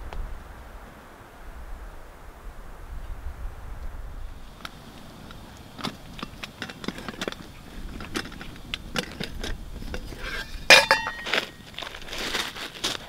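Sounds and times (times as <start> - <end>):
rustling of mesh sack: 9.3 - 13.0
metallic clink of pot lid: 10.3 - 11.3.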